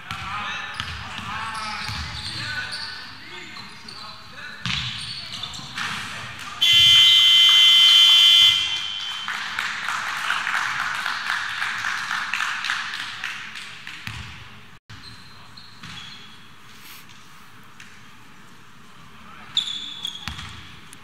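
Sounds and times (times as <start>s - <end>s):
arena buzzer: 6.6s - 8.9s.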